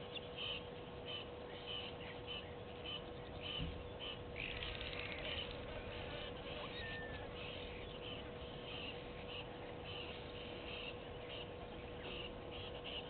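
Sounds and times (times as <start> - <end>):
faint steady hum: 0.0 - 13.0
insects buzzing in pulses: 0.2 - 13.0
thin bird whistle: 6.6 - 7.5.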